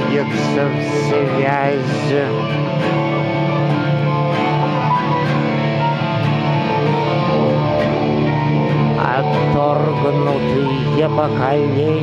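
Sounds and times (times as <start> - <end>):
acoustic guitar strumming: 0.0 - 12.0
electric guitar chords: 0.0 - 12.0.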